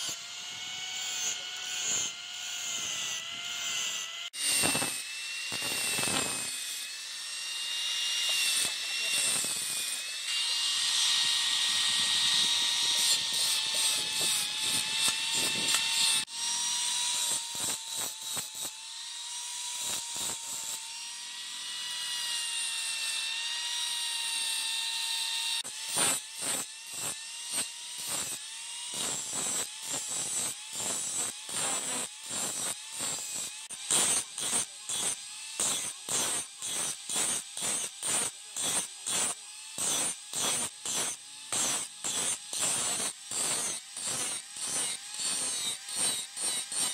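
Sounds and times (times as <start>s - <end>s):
angle grinder cutting steel: 0.0s - 46.9s
flap disc grinding blade: 8.2s - 16.3s, 25.8s - 46.9s.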